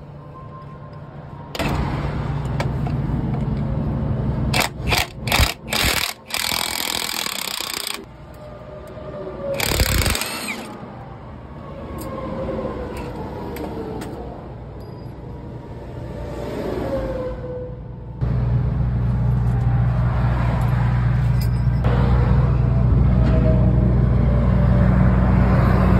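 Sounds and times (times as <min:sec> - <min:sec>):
air hammer chiselling metal nut: 0:04.6 - 0:08.1, 0:09.6 - 0:10.7.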